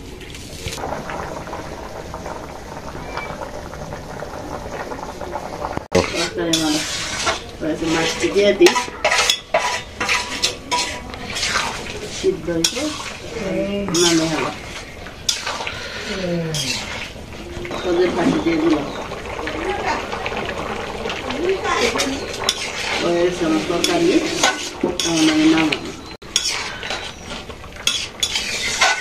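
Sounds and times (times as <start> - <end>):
metal spatula scraping a wok: 6.0 - 19.0, 21.8 - 29.0.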